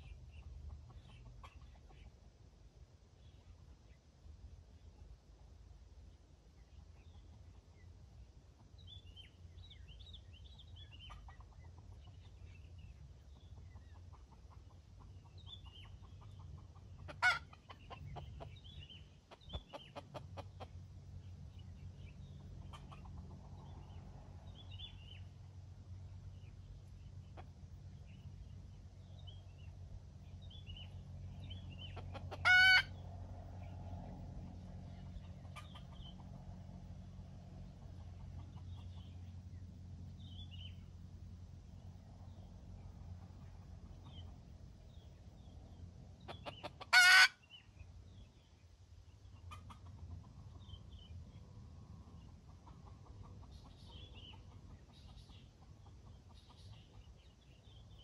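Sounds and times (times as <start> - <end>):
small birds chirping: 0.0 - 58.0
rooster clucking: 13.7 - 18.7, 19.3 - 20.8, 31.8 - 33.0, 35.4 - 36.2, 46.3 - 47.4.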